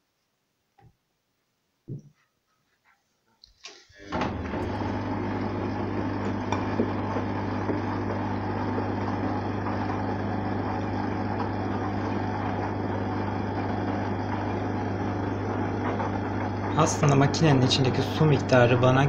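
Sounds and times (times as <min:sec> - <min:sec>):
laundry turning in water: 0:03.4 - 0:12.8
washing machine running: 0:03.6 - 0:19.0.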